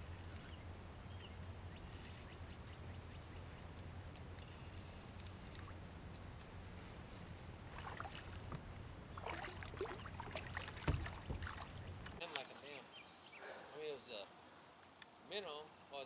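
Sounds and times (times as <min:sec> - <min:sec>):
thump: 0:10.8 - 0:11.5.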